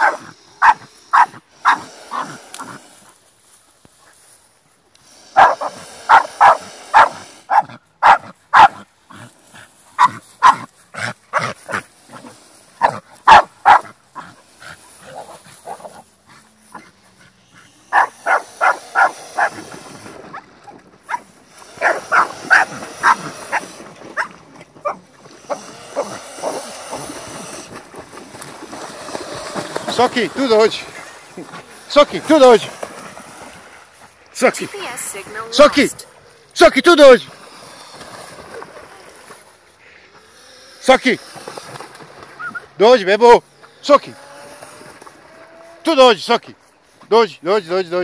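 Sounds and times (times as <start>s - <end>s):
dog barking: 0.0s - 1.8s, 5.4s - 8.8s, 10.0s - 10.7s, 12.8s - 13.9s, 17.9s - 19.5s, 21.1s - 25.0s
swan wings splashing water: 17.9s - 34.4s, 37.3s - 39.8s, 41.2s - 42.7s.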